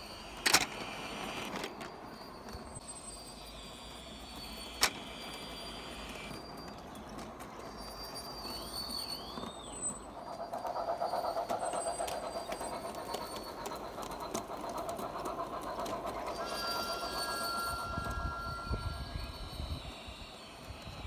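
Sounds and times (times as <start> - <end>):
model train motor whirring: 0.0 - 21.0
wheels rattling on rails: 0.0 - 21.0
steady high tone: 15.8 - 21.0.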